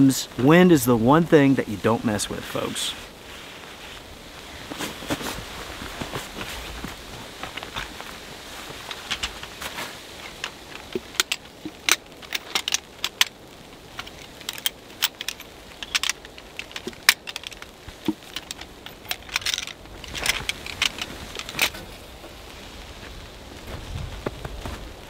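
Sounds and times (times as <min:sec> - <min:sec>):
tripod legs clicking and clacking: 0:06.1 - 0:22.0.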